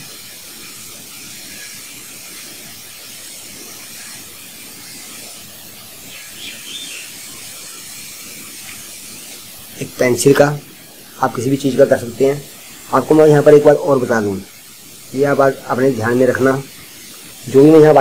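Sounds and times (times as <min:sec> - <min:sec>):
steady background hiss: 0:00.0 - 0:18.0.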